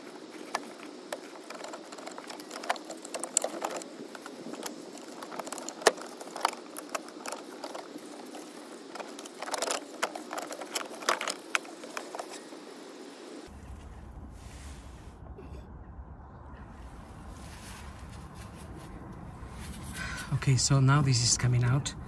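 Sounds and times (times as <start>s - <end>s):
small clicks and metallic knocks: 0.0s - 12.5s.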